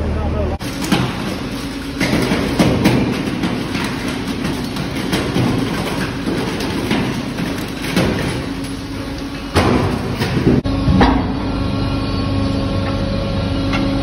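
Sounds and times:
machinery humming: 0.0 - 14.0
metal rattling on conveyor: 0.6 - 10.6.

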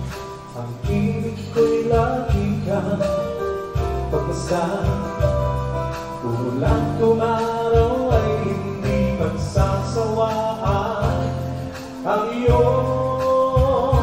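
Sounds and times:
amplified instrumental backing: 0.0 - 14.0
man singing into microphone: 0.0 - 14.0.

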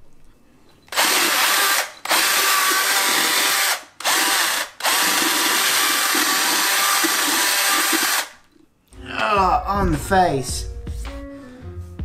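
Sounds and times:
cordless drill whirring: 0.9 - 8.4.

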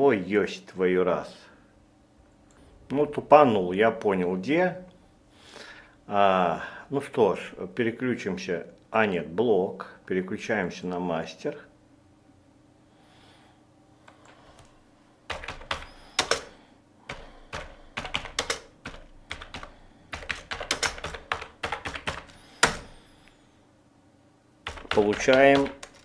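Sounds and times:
keyboard key clicks: 15.3 - 16.5, 17.1 - 23.0.

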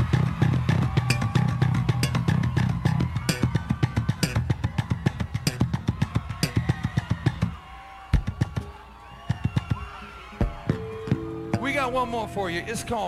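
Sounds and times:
electric bass solo: 0.0 - 6.6
drums: 0.0 - 13.0.

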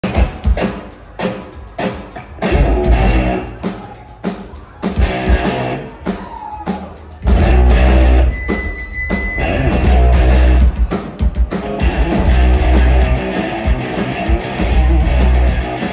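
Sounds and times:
live rock band playing: 0.0 - 15.9
drum hits: 2.4 - 3.6, 7.2 - 15.9
high steady tone: 7.2 - 10.6.

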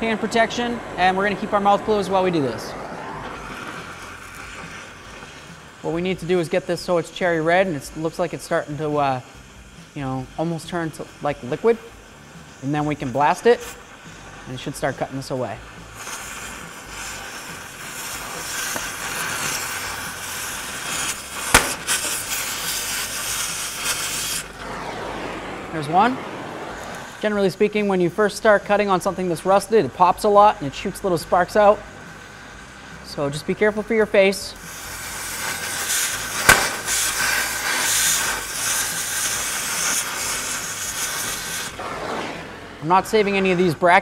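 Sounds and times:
cutting torch hissing: 0.0 - 44.0
rusted metal popping: 21.1 - 23.9, 36.3 - 37.8.

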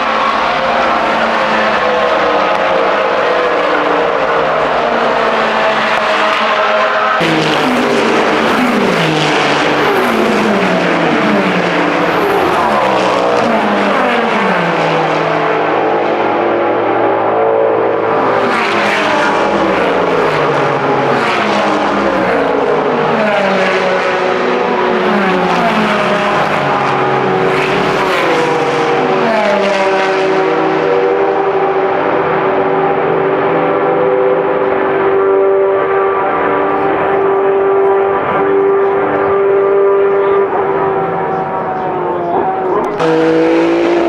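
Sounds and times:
race cars accelerating hard: 0.0 - 44.0.

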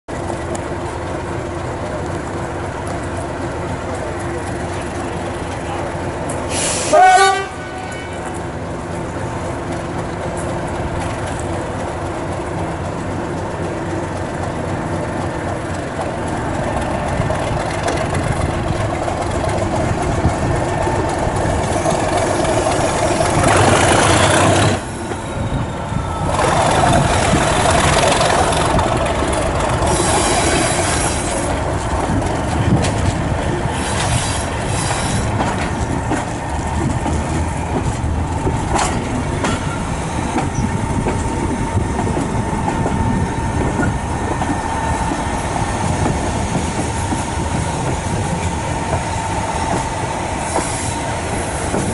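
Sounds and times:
diesel train engine: 0.1 - 51.9
diesel train horn blast: 6.5 - 8.4
wheels clattering over rails: 8.2 - 49.1.

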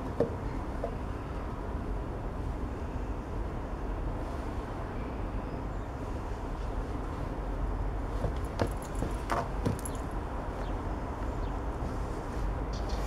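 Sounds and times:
shoes tapping on tiled pavement: 8.1 - 10.1.

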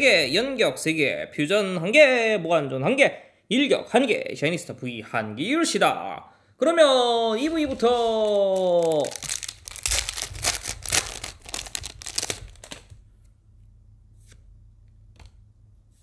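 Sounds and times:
foil pack tearing and crinkling: 8.4 - 12.9.

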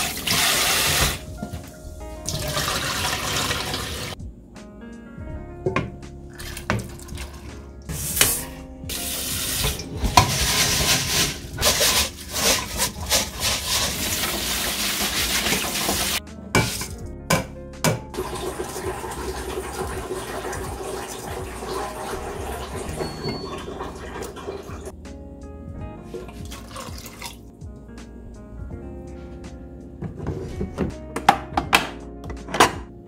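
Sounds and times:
water splashing in a sink: 0.0 - 1.3, 2.2 - 4.2, 6.3 - 7.5, 8.9 - 16.8, 18.2 - 24.9, 26.2 - 27.5
background music: 0.0 - 33.0.

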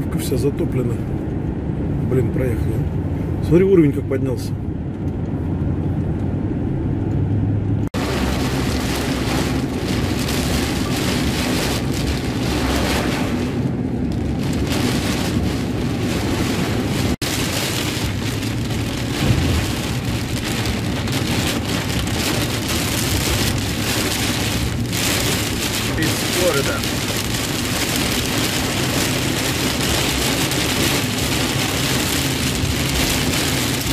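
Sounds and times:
engine and tyres on wet road: 0.0 - 33.9
heavy rain on car roof: 7.8 - 33.9.

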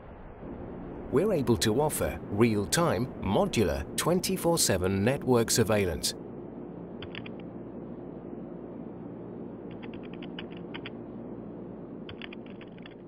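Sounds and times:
steady low hum: 0.0 - 13.0
keyboard typing: 9.7 - 10.9, 12.1 - 13.0.

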